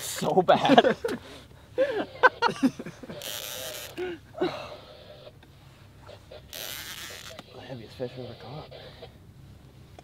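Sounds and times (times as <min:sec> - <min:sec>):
fishing reel rasping: 0:03.2 - 0:04.0, 0:06.5 - 0:07.4.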